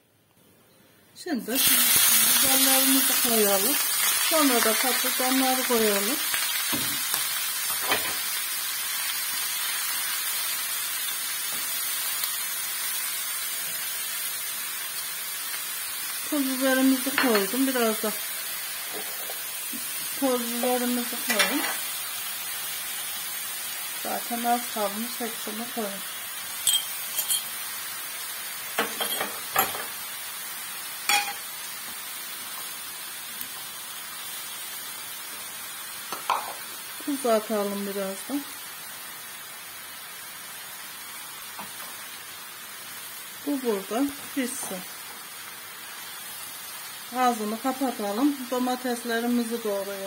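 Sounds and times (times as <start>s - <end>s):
vegetables sizzling in hot oil: 1.2s - 50.0s.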